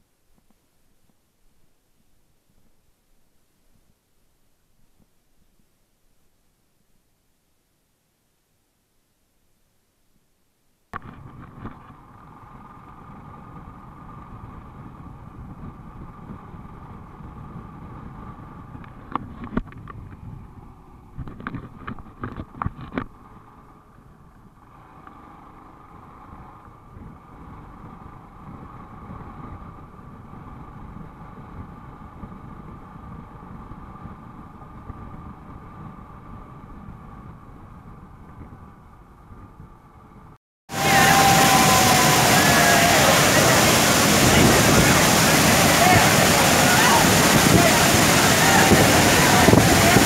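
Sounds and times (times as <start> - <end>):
motorcycle engine drone: 11.0 - 50.0
wind rush: 40.7 - 50.0.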